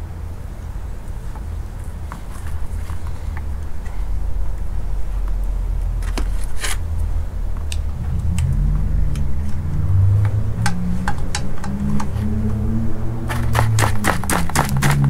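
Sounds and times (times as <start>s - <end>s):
low hum: 0.0s - 15.0s
low rumble: 2.6s - 6.1s, 6.8s - 15.0s.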